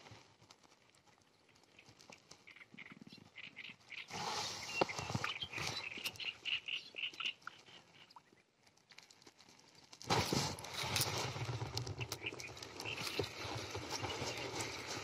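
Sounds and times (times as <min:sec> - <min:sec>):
fishing rod rustling and knocking: 0:10.1 - 0:15.0.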